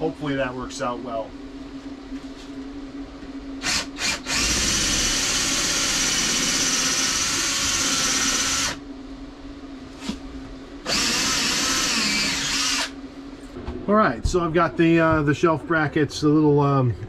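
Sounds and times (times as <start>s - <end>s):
cordless drill boring: 3.6s - 8.8s, 10.9s - 13.0s.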